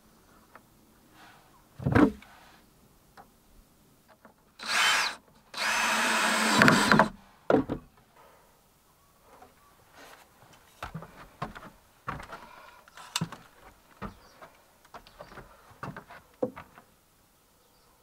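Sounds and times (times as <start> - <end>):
footsteps on plank floor: 10.8 - 12.5, 13.2 - 16.8.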